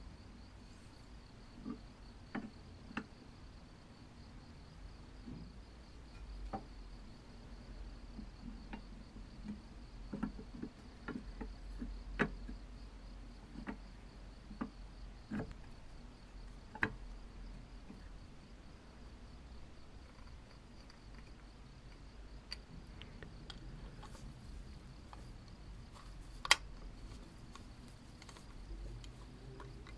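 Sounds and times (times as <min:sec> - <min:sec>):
steady low hum: 0:00.0 - 0:29.9
cast-iron parts clicking: 0:20.0 - 0:29.9.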